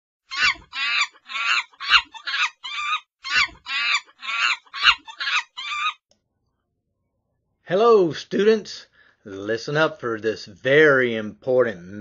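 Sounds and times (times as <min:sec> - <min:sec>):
high chattering animal calls: 0:00.3 - 0:06.0.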